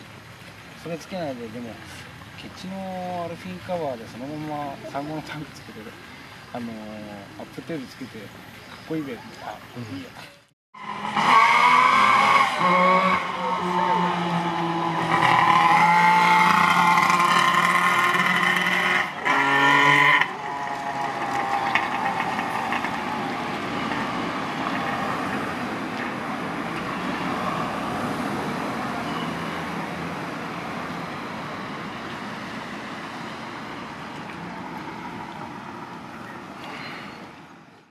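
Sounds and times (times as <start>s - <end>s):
street traffic noise: 0.0s - 37.9s
motorcycle engine passing: 10.8s - 29.1s.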